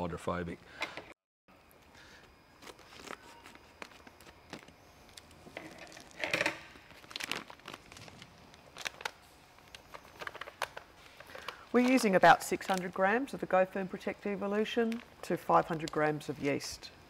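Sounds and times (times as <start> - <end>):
foil packet crinkling: 2.6 - 13.5.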